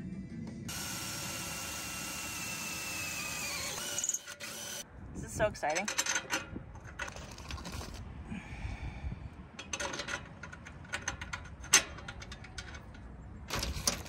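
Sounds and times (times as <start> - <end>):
metal bracket and bolts clinking: 5.7 - 7.3, 9.6 - 14.0.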